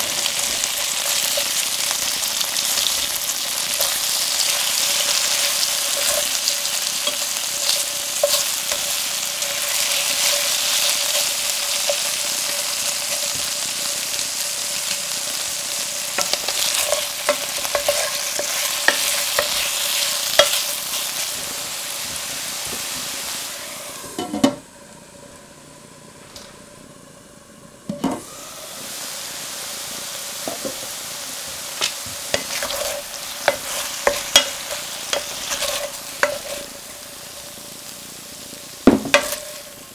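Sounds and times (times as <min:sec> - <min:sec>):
utensils clicking and scraping pan: 0:00.0 - 0:14.0, 0:16.0 - 0:21.7, 0:31.8 - 0:37.6, 0:39.1 - 0:39.9
beef sizzling in pan: 0:00.0 - 0:24.4, 0:28.2 - 0:39.9
faint steady hum: 0:00.0 - 0:39.9.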